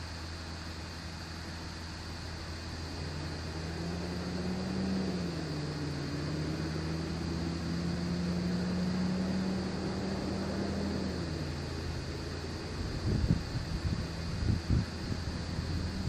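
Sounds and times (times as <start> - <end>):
constant hiss: 0.0 - 16.0
low mechanical hum: 0.0 - 16.0.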